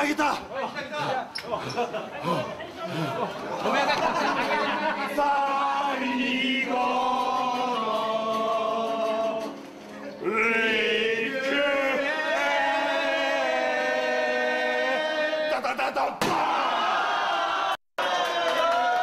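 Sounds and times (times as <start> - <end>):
voices singing together: 1.5 - 16.2.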